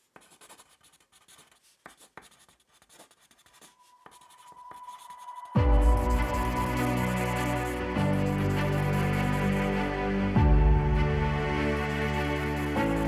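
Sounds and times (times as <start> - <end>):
pencil scratching on paper: 0.0 - 9.8, 12.2 - 13.0
music hit with deep bass: 5.6 - 6.8.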